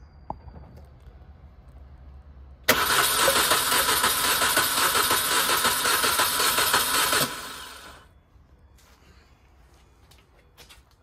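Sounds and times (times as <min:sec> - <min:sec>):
starter motor cranking engine: 0:02.7 - 0:08.0.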